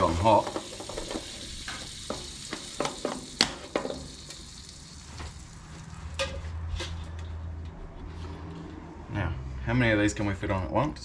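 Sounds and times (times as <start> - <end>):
butter sizzling on grill: 0.0 - 6.4.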